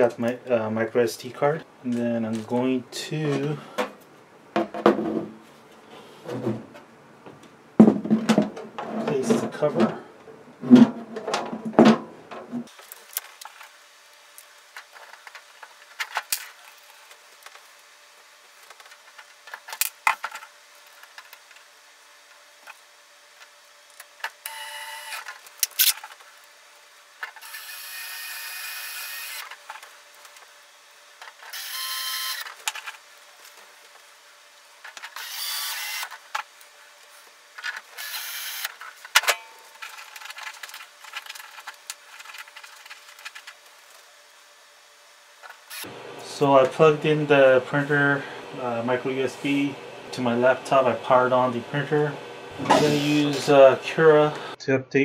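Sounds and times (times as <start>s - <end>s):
cordless drill whirring: 24.5s - 25.9s, 27.4s - 29.5s, 31.5s - 32.5s, 35.2s - 36.1s, 38.0s - 38.7s.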